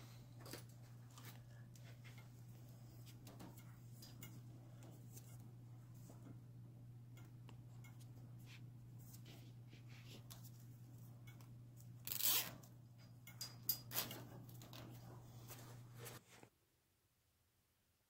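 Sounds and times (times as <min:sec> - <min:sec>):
cable tie zipping rasp: 0:12.0 - 0:12.7.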